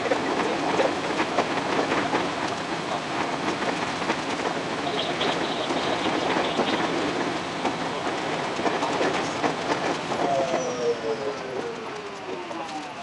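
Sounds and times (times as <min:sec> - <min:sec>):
train running noise: 0:00.0 - 0:13.0
wheels clicking over rails: 0:00.0 - 0:13.0.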